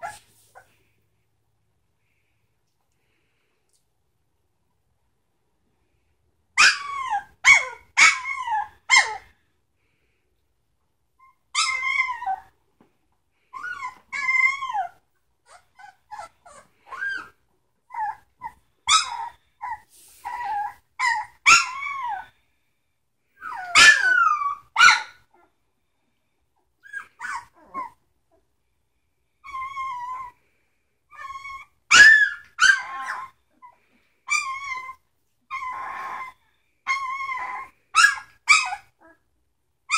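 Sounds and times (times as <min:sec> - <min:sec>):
puppies crying: 0:11.2 - 0:12.5, 0:13.5 - 0:22.3, 0:23.4 - 0:25.2, 0:31.1 - 0:39.2.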